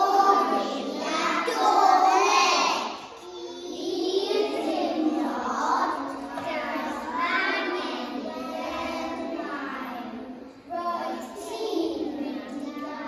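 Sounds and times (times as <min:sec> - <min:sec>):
children singing together: 0:00.0 - 0:13.0.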